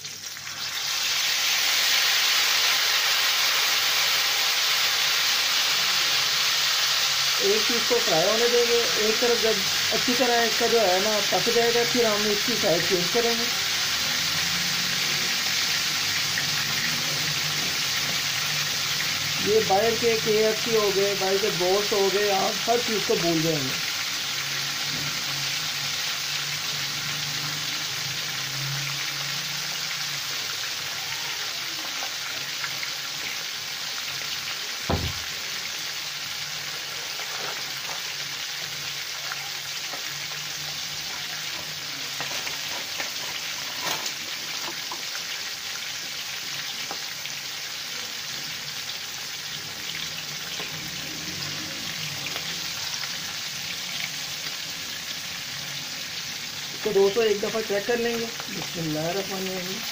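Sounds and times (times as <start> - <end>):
chicken sizzling in hot oil: 0.0 - 59.9
sharp knock: 34.9 - 35.3.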